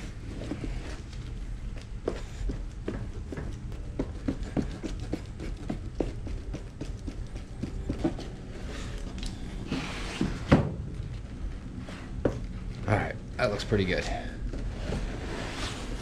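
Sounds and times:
spreader scraping on cardboard: 14.8 - 16.0.

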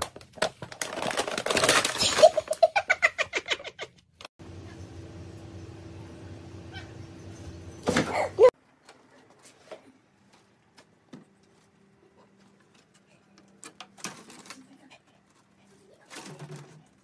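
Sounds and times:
steady low hum: 4.4 - 8.5.

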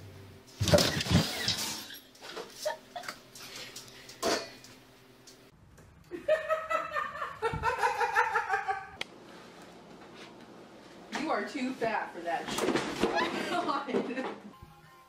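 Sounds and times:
high-pitched laughter: 6.1 - 9.0.

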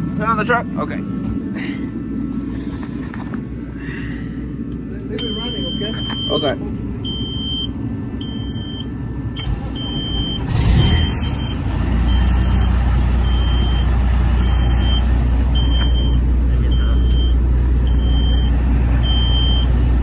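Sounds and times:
diesel truck engine idling: 0.0 - 20.0
warning buzzer beeps: 5.2 - 8.9, 9.8 - 12.7.

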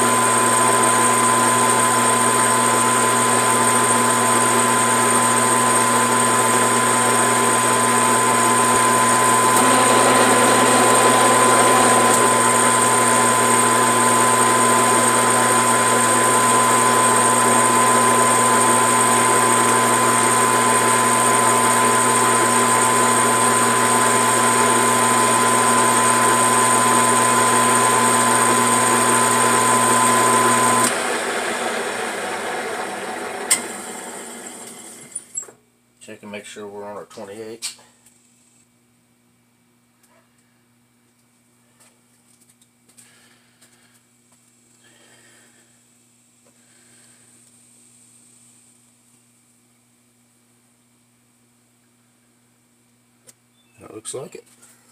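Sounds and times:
metal lathe running: 0.0 - 35.2
high motor whine: 3.9 - 31.2.

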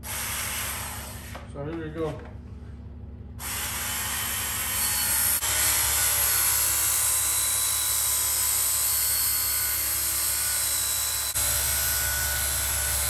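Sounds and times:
belt sander grinding steel: 3.4 - 13.0.

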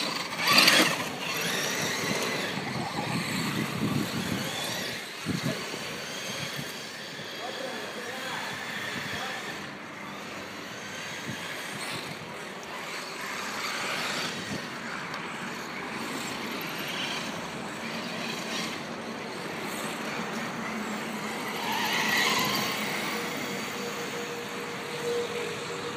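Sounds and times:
tyres scrabbling on dirt: 0.0 - 5.2
electric motors whining: 0.0 - 25.9.

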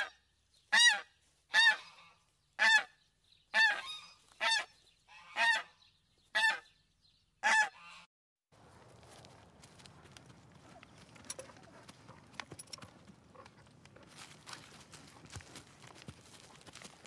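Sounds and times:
hooves rustling on leaves: 8.6 - 17.0.

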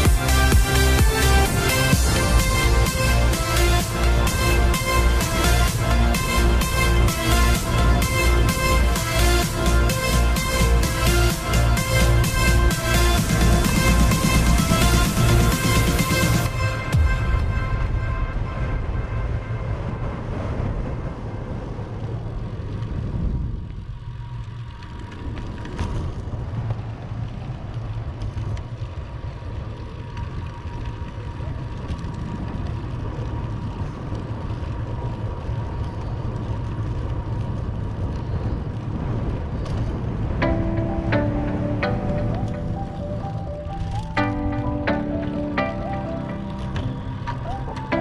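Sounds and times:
bicycle road noise: 0.0 - 48.0
wind rumbling on microphone: 0.0 - 48.0.

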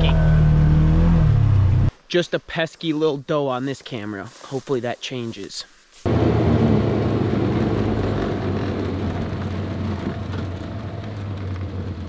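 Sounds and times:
vehicle engine humming: 0.0 - 1.9, 6.1 - 12.0
road and wind noise: 6.1 - 12.0.

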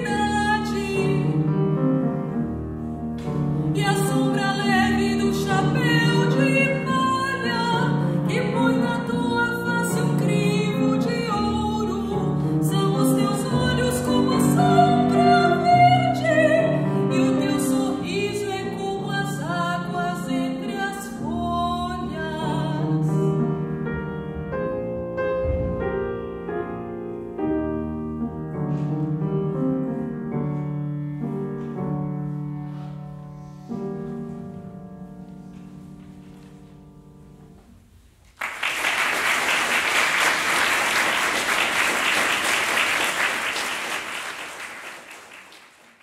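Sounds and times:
grand piano playing: 0.0 - 38.2
audience applause: 38.4 - 46.0.

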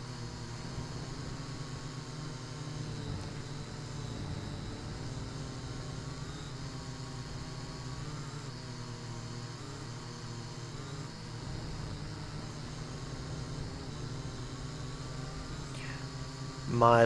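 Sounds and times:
drone motors and propellers whirring: 0.0 - 17.0.

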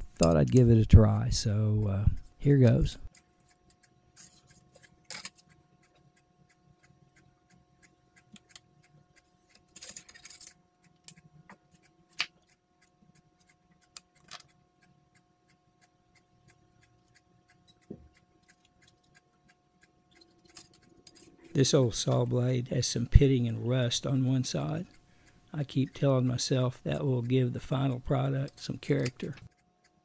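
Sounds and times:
faint even ticking: 10.8 - 30.0.

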